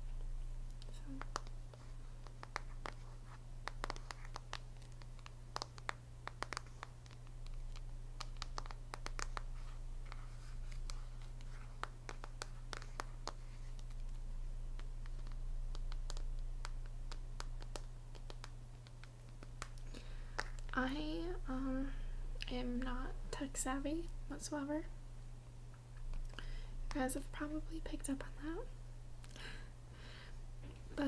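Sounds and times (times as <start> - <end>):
steady low hum: 0.0 - 31.0
fingernails tapping on phone case: 1.2 - 1.5, 3.6 - 7.2.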